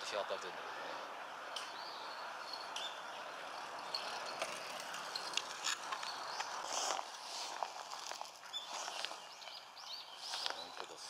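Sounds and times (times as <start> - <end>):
high bird chirps: 1.5 - 4.4, 8.4 - 10.9.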